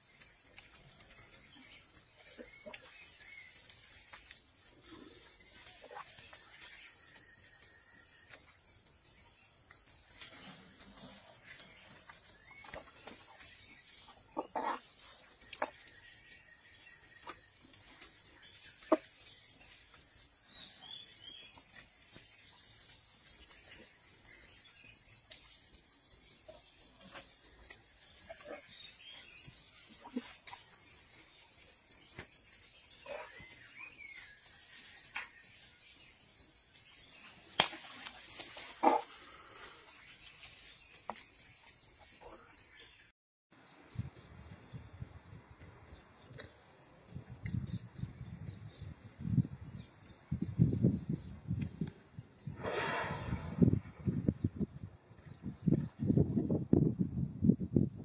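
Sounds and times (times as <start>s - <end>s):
insects chirring: 0.0s - 43.0s
twigs snapping and leaves rustling: 37.5s - 38.6s.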